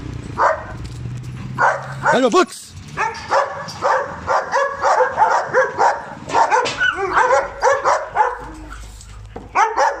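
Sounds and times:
dog barking: 0:00.4 - 0:00.8, 0:01.6 - 0:02.3, 0:03.0 - 0:08.7, 0:09.5 - 0:10.0.

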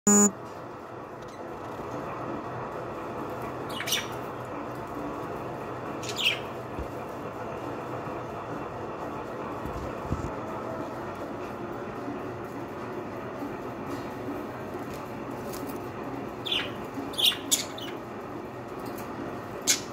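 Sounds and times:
brief loud tone: 0:00.0 - 0:00.4.

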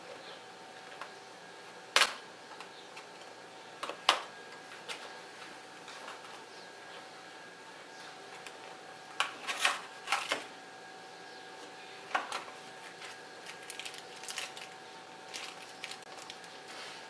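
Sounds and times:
plastic bag crinkling: 0:13.0 - 0:16.7.

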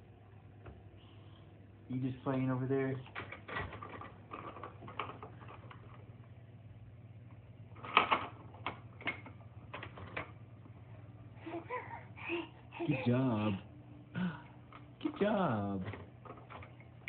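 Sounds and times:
faint low hum: 0:00.0 - 0:17.0
plastic toys clicking and tapping: 0:15.8 - 0:16.8.

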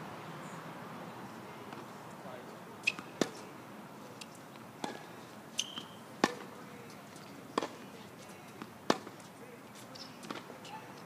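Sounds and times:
tennis ball hitting rackets: 0:02.8 - 0:03.5, 0:04.2 - 0:11.0.

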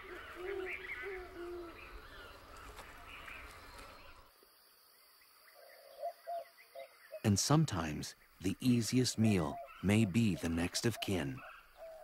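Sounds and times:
low hooting animal calls: 0:00.0 - 0:02.5.

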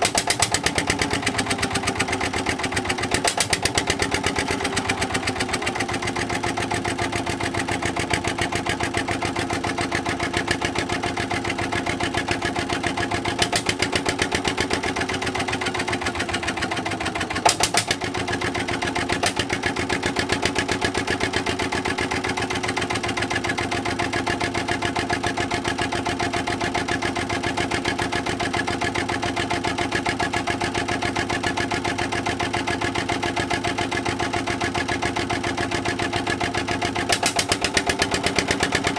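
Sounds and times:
diesel engine running: 0:00.0 - 0:38.9.

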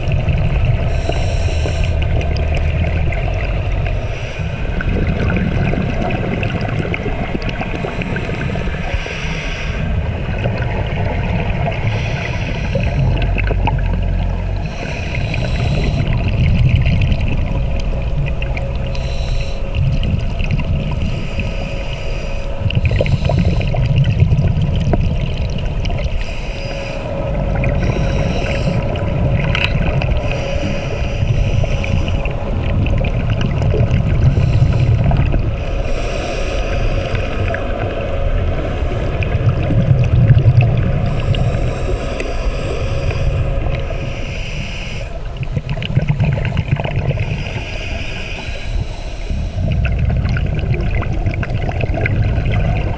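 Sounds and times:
bubbles rumbling on exhale: 0:00.0 - 0:09.2, 0:09.8 - 0:21.2, 0:22.6 - 0:26.3, 0:27.0 - 0:36.0, 0:37.4 - 0:41.8, 0:45.2 - 0:47.7, 0:49.3 - 0:52.9
regulator hiss on inhale: 0:00.8 - 0:02.0, 0:03.9 - 0:04.7, 0:07.8 - 0:10.0, 0:11.8 - 0:13.4, 0:14.6 - 0:16.5, 0:18.8 - 0:20.0, 0:20.9 - 0:24.1, 0:25.9 - 0:32.5, 0:34.2 - 0:37.8, 0:41.0 - 0:45.4, 0:47.1 - 0:50.0.

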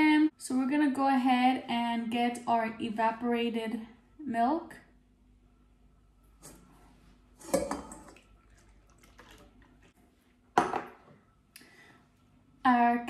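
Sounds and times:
tin can clanking on metal bowl: 0:07.4 - 0:08.2.

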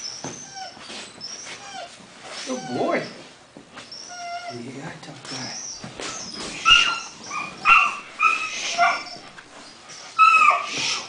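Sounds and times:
puppy whining and yipping: 0:00.0 - 0:04.7, 0:05.6 - 0:11.0.

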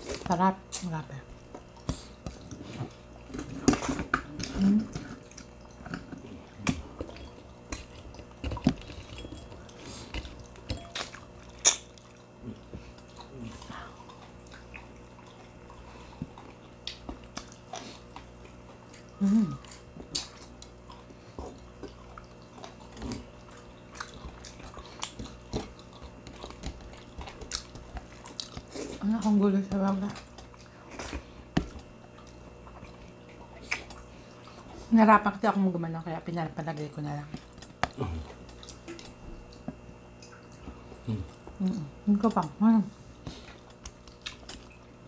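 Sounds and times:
close chewing and mouth sounds: 0:00.0 - 0:45.0
low humming voice: 0:03.3 - 0:05.2, 0:12.4 - 0:14.2, 0:19.0 - 0:19.9, 0:37.9 - 0:38.4, 0:41.0 - 0:43.0.

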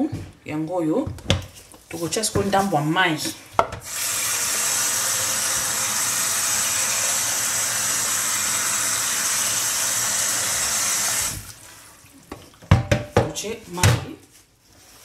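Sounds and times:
tap water running into a pot: 0:03.8 - 0:12.8.

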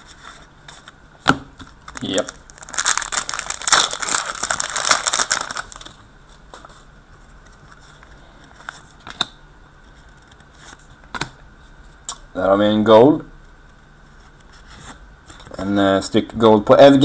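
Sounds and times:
wrapper crinkling and tearing: 0:01.8 - 0:06.0.

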